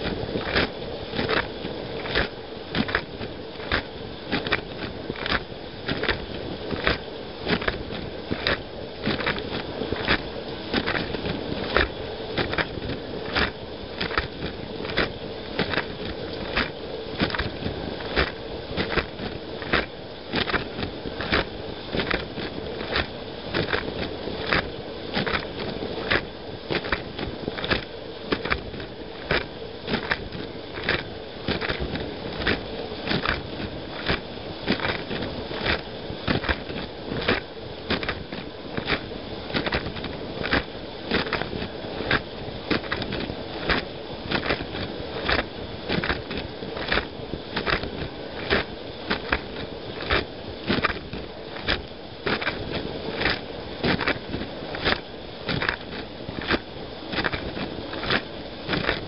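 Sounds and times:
dishwasher water spray and pump: 0.0 - 59.0
water splashes from spray arm: 0.0 - 59.0.

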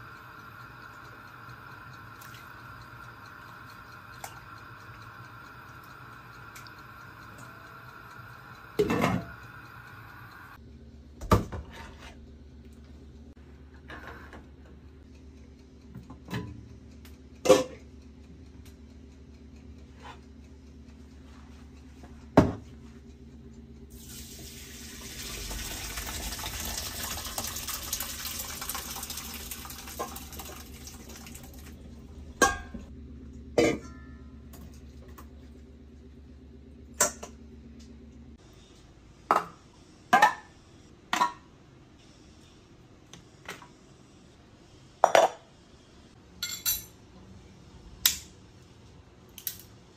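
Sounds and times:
steady low hum: 0.0 - 49.9
metal pot and lid clanking: 17.5 - 17.8, 32.4 - 32.9, 33.6 - 34.2
water pouring into a strainer: 24.0 - 31.7.

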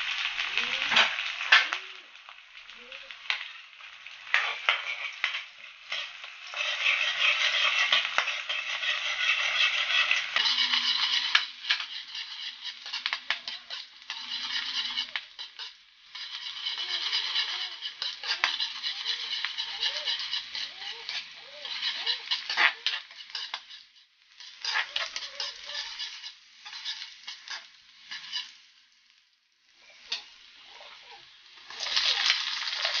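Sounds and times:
hot oil sizzling in a wok: 0.0 - 33.0.

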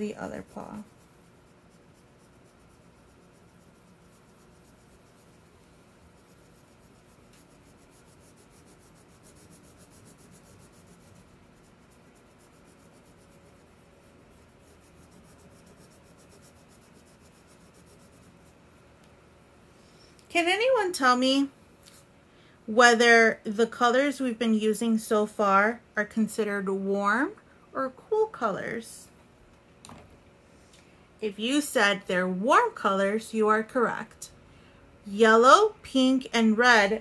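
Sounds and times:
crayon rubbing on paper: 0.0 - 18.6.

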